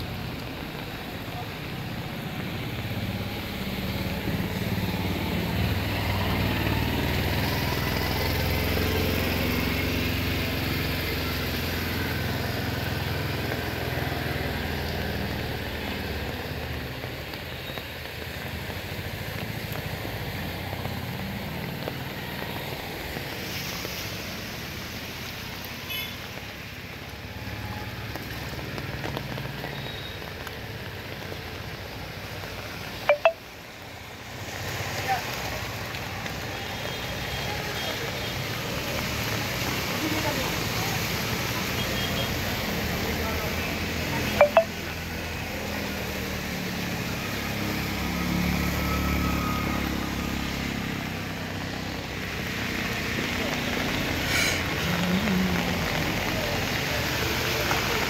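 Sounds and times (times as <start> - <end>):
water spray from wheels: 0.0 - 58.0
vehicle engine hum: 47.0 - 58.0.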